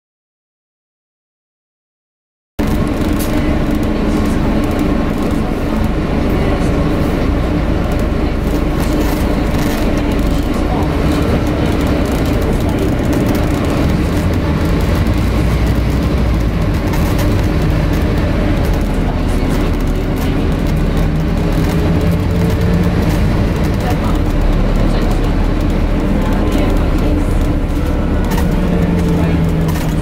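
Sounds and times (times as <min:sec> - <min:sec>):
bus engine running: 0:02.6 - 0:30.0.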